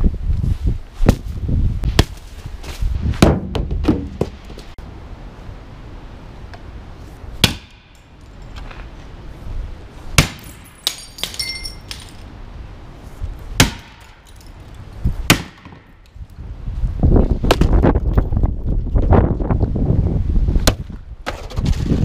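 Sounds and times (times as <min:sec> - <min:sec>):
wind rumble on microphone: 0:00.0 - 0:05.7, 0:14.8 - 0:15.3, 0:16.0 - 0:22.0.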